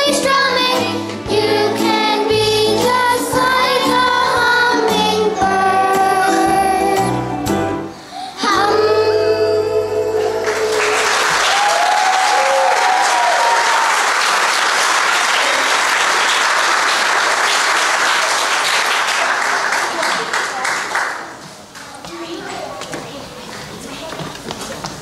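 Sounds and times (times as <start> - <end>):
children's choir singing: 0.0 - 7.5, 8.4 - 11.3
audience cheering: 10.4 - 20.6
audience applauding: 10.4 - 21.4.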